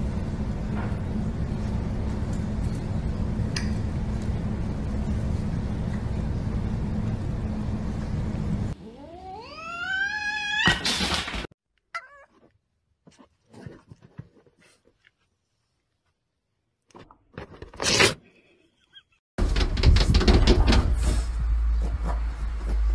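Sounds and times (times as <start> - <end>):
cat yowling: 8.8 - 10.8, 12.0 - 12.3.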